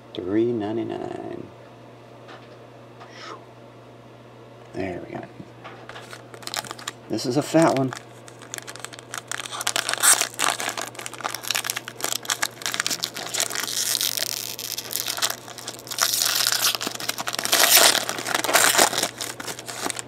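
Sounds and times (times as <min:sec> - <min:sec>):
foil wrapper tearing and crinkling: 0:06.0 - 0:20.0.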